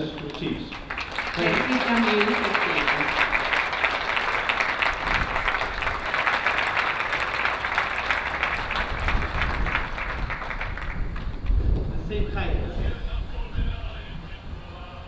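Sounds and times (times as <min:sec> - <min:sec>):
people clapping: 0:00.0 - 0:11.9.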